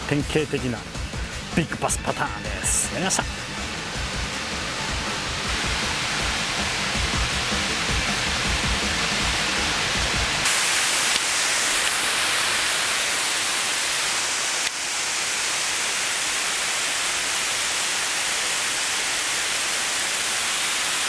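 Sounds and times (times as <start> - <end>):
background music: 0.0 - 10.5
waterfall and river rushing: 3.8 - 21.0.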